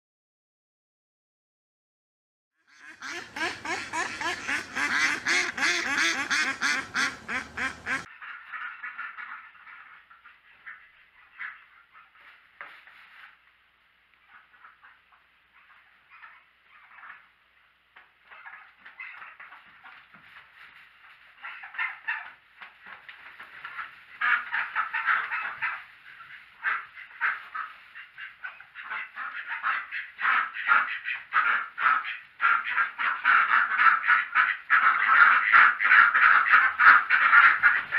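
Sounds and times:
faint duck quacking: 2.6s - 13.4s, 18.2s - 22.4s, 23.3s - 37.9s
rapid duck quacks: 2.7s - 12.3s, 23.6s - 37.9s.

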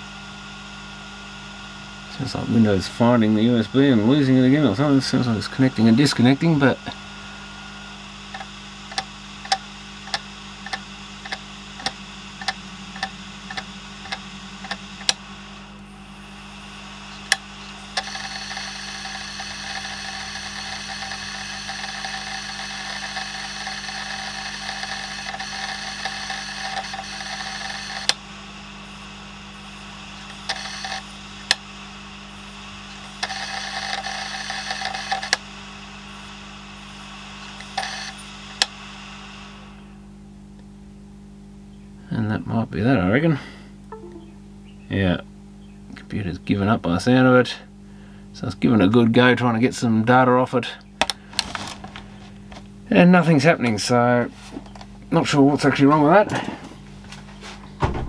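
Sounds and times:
hard drive whirring buzz: 0.0s - 58.0s
hard drive heads clicking: 8.3s - 15.2s.

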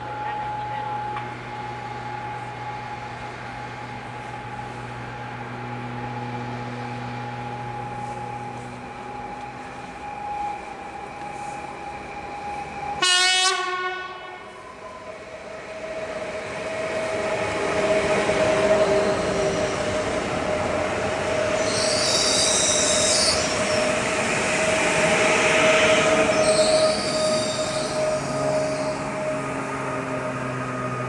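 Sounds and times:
train whine: 0.0s - 31.0s
wheels rumbling on rail: 0.0s - 31.0s
train horn: 13.0s - 14.6s
high wheel squeals: 15.8s - 31.0s.

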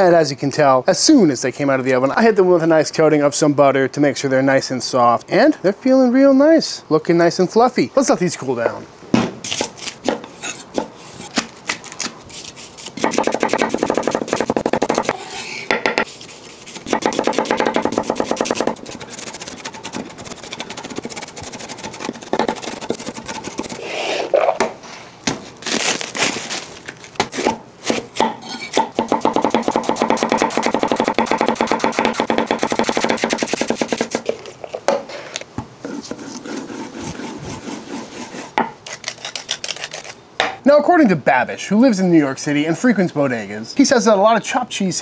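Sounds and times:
knife shredding lettuce: 9.5s - 15.4s, 16.1s - 24.0s, 29.2s - 34.2s, 35.9s - 40.2s
knife chopping on wooden block: 16.9s - 18.8s, 27.2s - 34.3s.

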